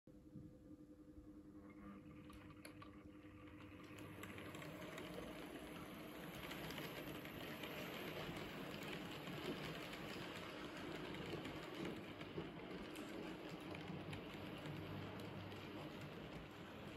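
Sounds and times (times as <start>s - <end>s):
model train wheels rattling: 3.4s - 16.9s.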